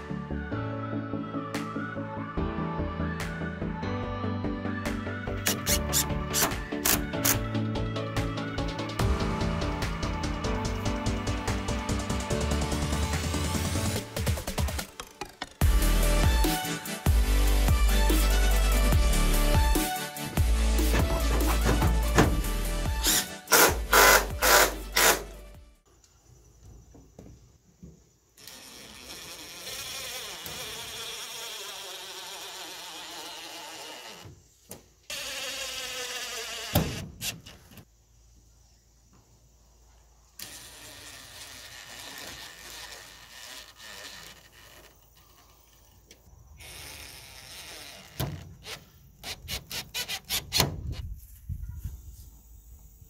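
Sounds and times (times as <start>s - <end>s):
cordless driver whirring: 28.4s - 34.4s, 35.1s - 37.0s.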